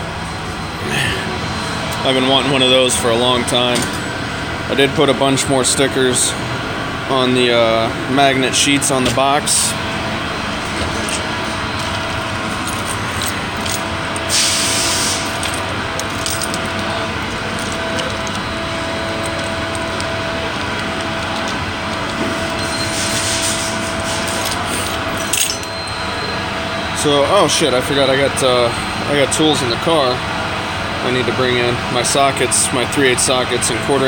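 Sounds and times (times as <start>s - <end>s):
shop machinery drone: 0.0s - 34.0s
keys and toolbox clicks: 10.8s - 22.8s, 24.3s - 25.8s.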